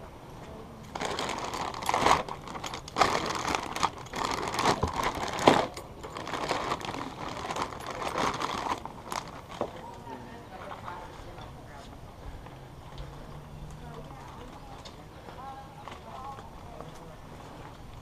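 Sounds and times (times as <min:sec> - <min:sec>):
crinkling rustling: 0:00.9 - 0:10.0.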